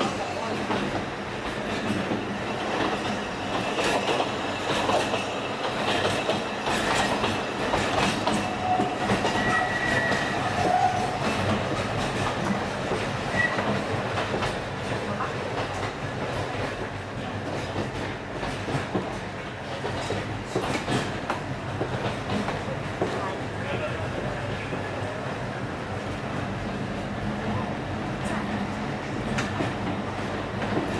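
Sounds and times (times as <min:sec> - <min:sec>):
train wheels clacking over joints: 0:00.0 - 0:23.4
faint wheel squeal: 0:08.5 - 0:11.1, 0:13.3 - 0:13.7.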